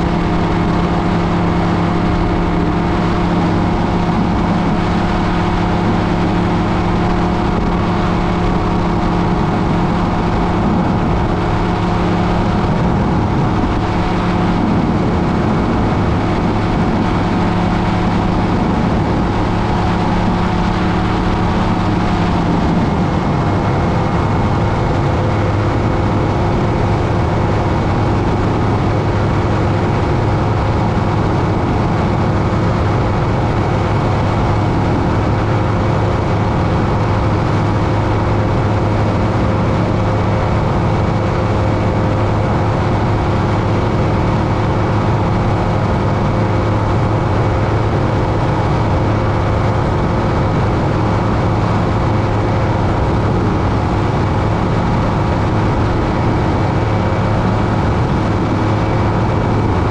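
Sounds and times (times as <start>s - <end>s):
ultralight aircraft engine droning: 0.0s - 59.9s.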